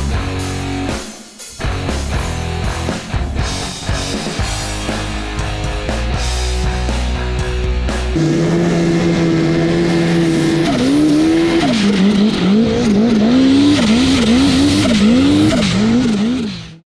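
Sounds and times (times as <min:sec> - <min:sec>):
snowmobile engine revving: 0:07.9 - 0:16.8.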